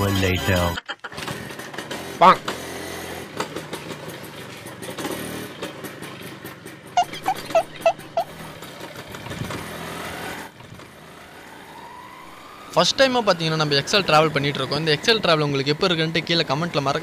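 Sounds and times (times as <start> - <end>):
moped engine running: 0.2 - 17.0
short high beeps: 7.0 - 8.3.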